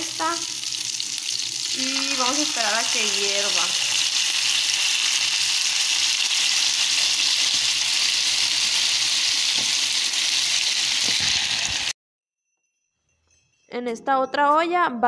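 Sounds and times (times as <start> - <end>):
sauce sizzling in a frying pan: 0.0 - 11.9.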